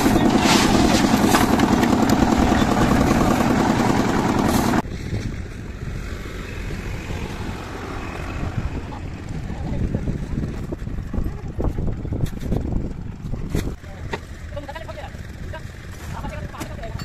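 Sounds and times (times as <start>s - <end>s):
shovels scraping concrete: 0.0s - 3.2s
diesel engine running: 0.0s - 4.8s
outdoor background: 0.0s - 17.0s.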